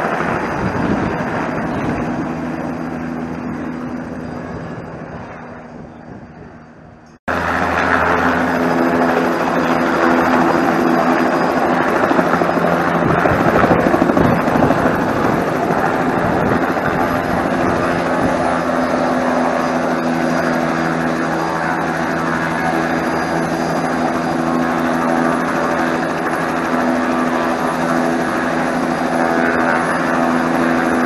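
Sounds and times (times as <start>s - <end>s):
distant helicopter: 0.0s - 31.0s
helicopter rotor running close: 0.0s - 31.0s.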